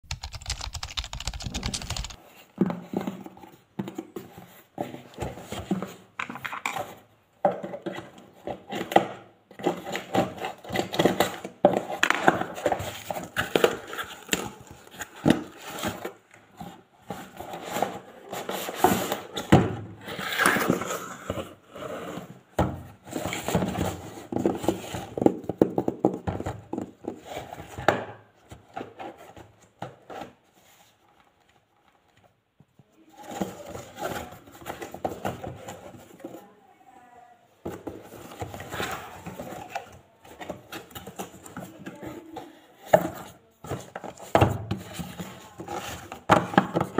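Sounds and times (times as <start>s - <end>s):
rapid even clicking: 0.0s - 2.2s.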